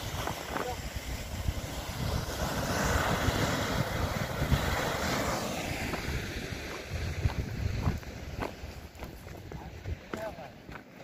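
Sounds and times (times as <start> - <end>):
wind buffeting microphone: 0.0 - 10.8
surf washing over rocks: 0.0 - 11.0.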